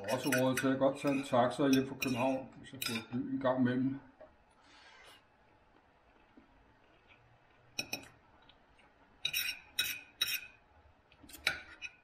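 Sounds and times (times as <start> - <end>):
knife and fork clinking on plate: 0.0 - 3.2.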